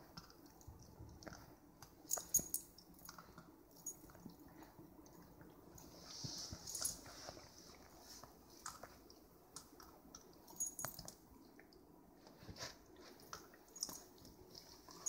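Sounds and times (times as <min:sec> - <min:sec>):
puppy licking and gnawing ice: 0:00.0 - 0:11.7.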